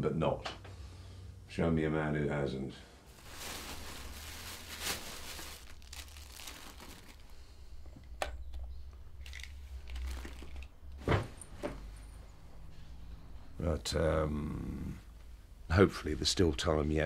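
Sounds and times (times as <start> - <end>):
rustling and crinkling: 3.1 - 13.0.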